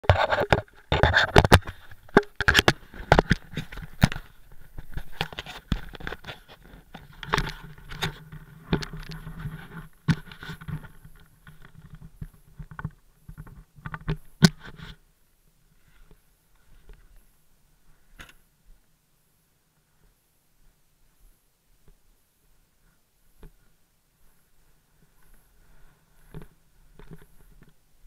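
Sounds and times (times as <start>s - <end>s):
camera handling knocks and scrapes: 0.1s - 12.0s.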